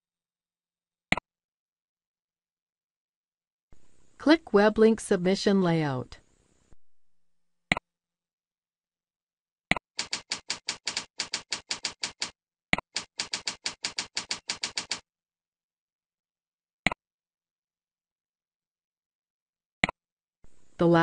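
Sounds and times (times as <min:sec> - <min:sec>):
keyboard keystrokes: 0:10.0 - 0:15.0.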